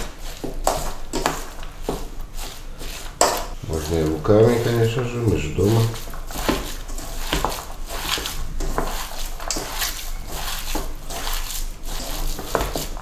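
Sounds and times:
wet squishing of minced meat: 0:00.0 - 0:13.0.

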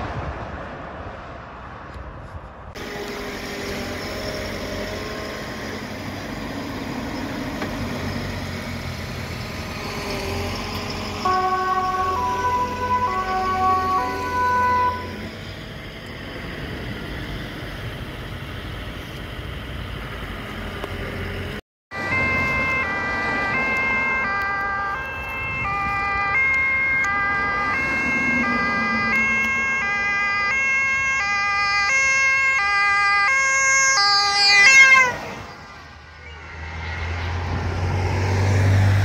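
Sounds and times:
road traffic: 0:00.0 - 0:39.0
ambulance two-tone siren: 0:09.7 - 0:15.6, 0:21.9 - 0:36.9.

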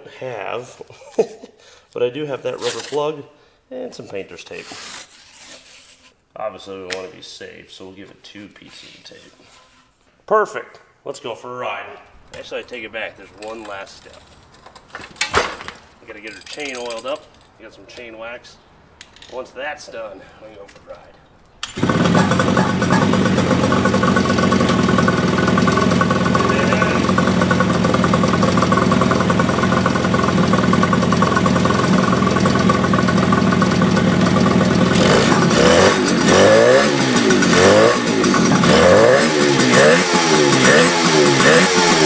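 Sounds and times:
two-stroke engine revving: 0:21.8 - 0:42.0.

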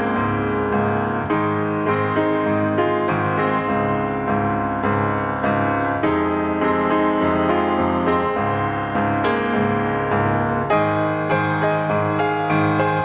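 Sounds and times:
piano background music: 0:00.0 - 0:13.0.

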